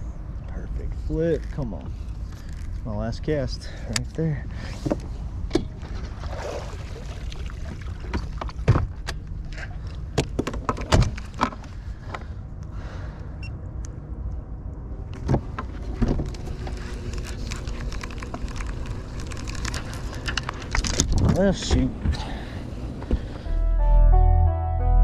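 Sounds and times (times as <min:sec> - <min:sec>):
steady low hum: 0:00.0 - 0:24.1
fishing gear clicking and rattling: 0:01.5 - 0:02.8, 0:16.1 - 0:21.8.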